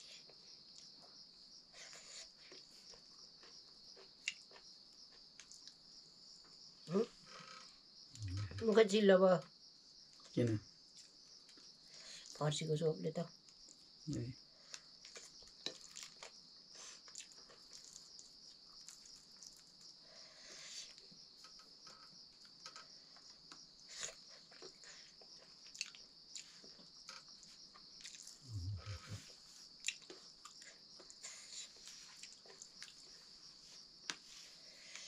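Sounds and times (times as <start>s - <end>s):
crickets chirring: 0.0s - 35.0s
chewing: 1.8s - 5.8s, 14.7s - 19.8s, 23.2s - 26.8s, 27.4s - 33.2s.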